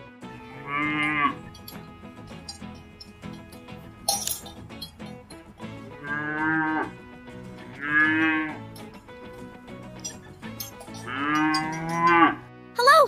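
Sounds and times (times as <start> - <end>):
soft background music: 0.0 - 13.0
cow mooing: 0.5 - 1.5, 5.9 - 8.9, 10.9 - 12.4.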